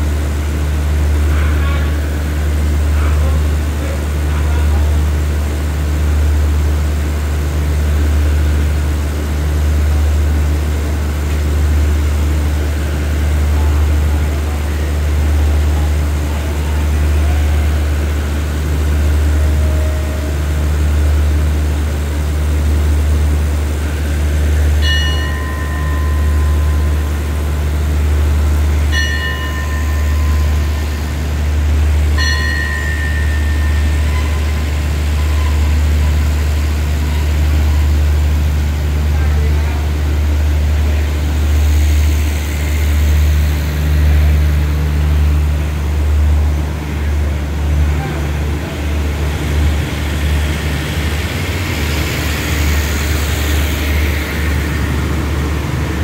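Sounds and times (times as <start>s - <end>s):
diesel train engine hum: 0.0s - 56.0s
high ringing tones: 24.8s - 36.6s.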